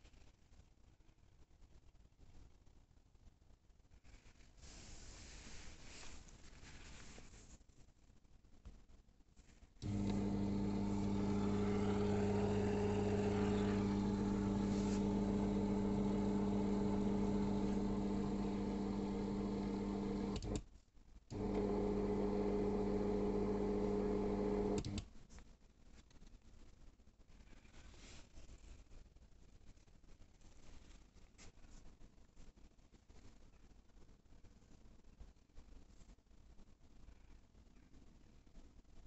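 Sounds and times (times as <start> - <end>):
curtain motor humming: 9.8 - 20.6, 21.3 - 25.0.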